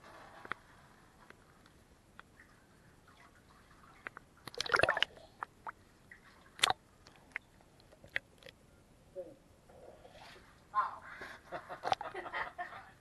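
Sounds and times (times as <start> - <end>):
sharp drips and clicks: 1.3 - 8.6
lake water splashing and dripping: 2.2 - 8.5.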